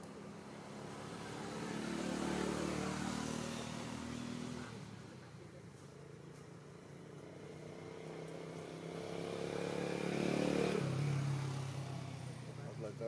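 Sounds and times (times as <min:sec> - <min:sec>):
vehicle engine passing: 0:00.0 - 0:13.0.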